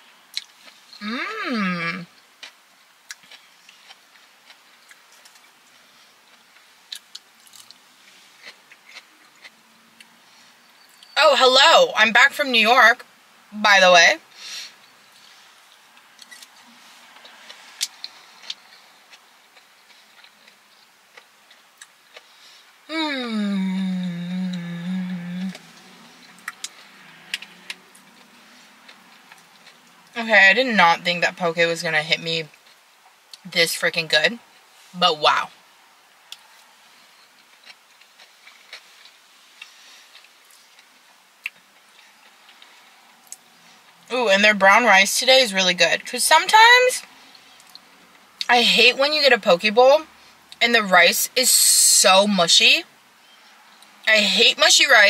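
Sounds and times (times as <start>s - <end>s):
soft chewing: 0.3s - 1.3s, 2.0s - 11.2s, 14.7s - 22.8s, 24.2s - 30.2s, 36.2s - 44.1s, 47.0s - 48.5s
person humming while chewing: 1.0s - 2.1s, 22.9s - 25.8s.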